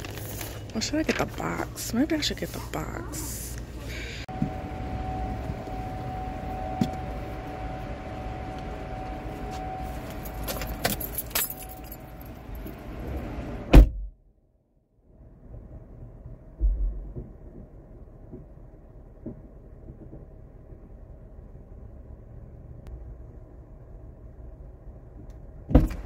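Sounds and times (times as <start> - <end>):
car door slamming: 13.7 - 14.1, 25.7 - 26.0
dull thump: 13.7 - 14.2, 16.6 - 17.7, 25.7 - 26.0.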